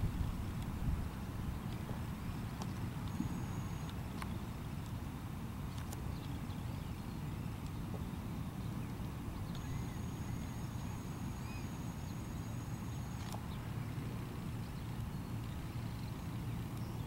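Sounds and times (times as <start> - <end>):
wind buffeting microphone: 0.0 - 3.4
distant bird chirps: 1.1 - 5.1, 5.7 - 17.0
thin high whine: 2.2 - 4.6, 9.4 - 17.0.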